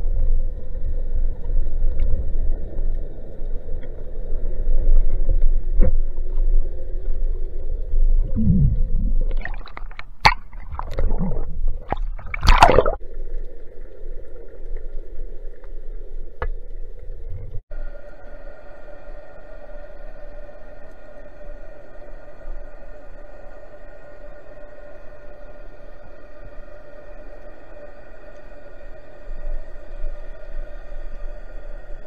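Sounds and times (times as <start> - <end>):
underwater rumble of moving water: 0.0 - 32.0
water gurgling: 8.0 - 13.1.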